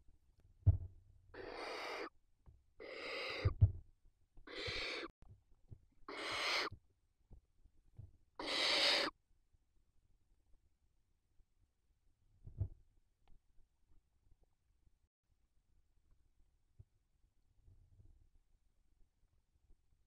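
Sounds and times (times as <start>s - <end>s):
owlets hissing: 2.8s - 3.5s, 4.5s - 5.1s, 6.1s - 6.7s, 8.4s - 9.1s.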